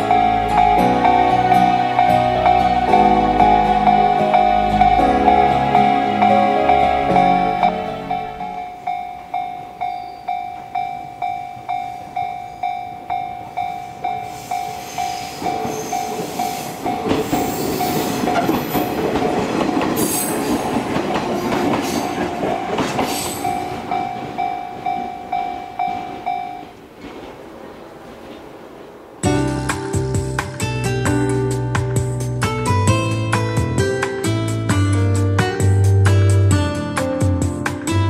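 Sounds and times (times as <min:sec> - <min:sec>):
level crossing bell ringing: 0:00.0 - 0:17.2
high-pitched wheel noise: 0:00.0 - 0:19.2
train passing rumble: 0:00.0 - 0:36.8.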